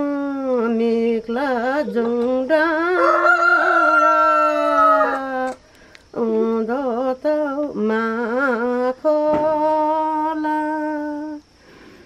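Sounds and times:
woman singing unaccompanied: 0:00.0 - 0:11.5.

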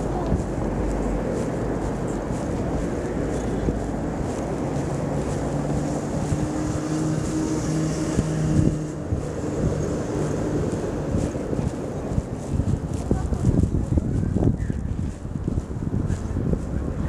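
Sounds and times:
car engine hum: 0:00.0 - 0:17.0
wind buffeting microphone: 0:00.0 - 0:17.0.

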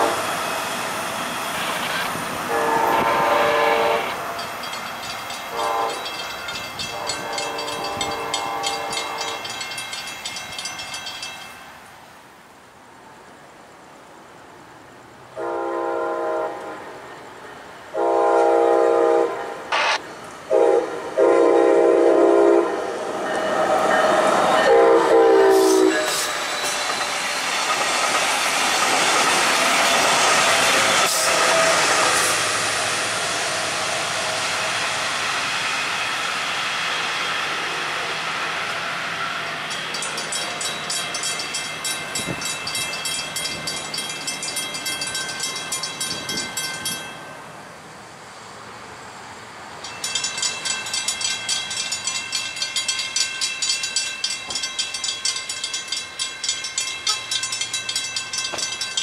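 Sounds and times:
train air horn blasts: 0:00.0 - 0:00.3, 0:01.6 - 0:04.3, 0:05.5 - 0:06.1, 0:06.9 - 0:09.5, 0:15.4 - 0:17.0, 0:17.9 - 0:22.9, 0:24.6 - 0:26.6
train wheels on rails: 0:00.0 - 0:12.3, 0:15.3 - 0:59.0.

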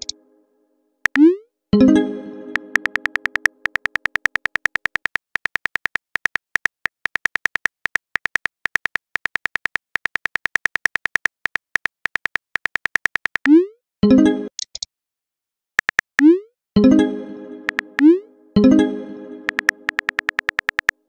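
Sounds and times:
phone keyboard typing clicks: 0:01.0 - 0:01.3, 0:02.5 - 0:13.5, 0:15.8 - 0:16.3, 0:19.5 - 0:21.0.

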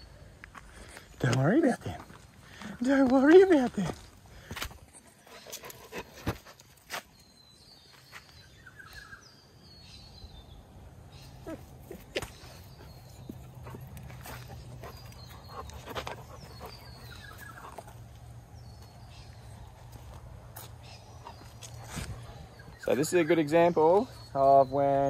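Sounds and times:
bird chirps: 0:07.1 - 0:25.0.

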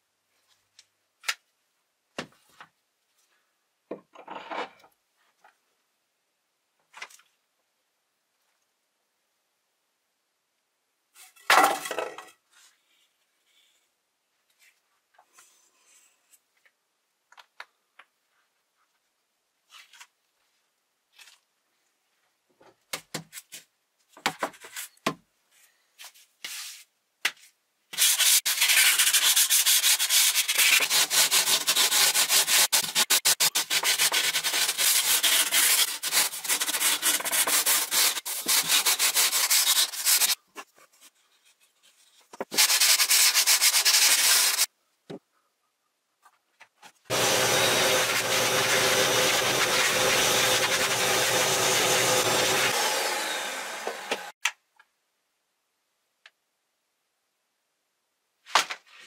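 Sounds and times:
sandpaper scratchy rubbing: 0:28.0 - 0:40.4, 0:42.4 - 0:44.7, 0:47.1 - 0:52.8.

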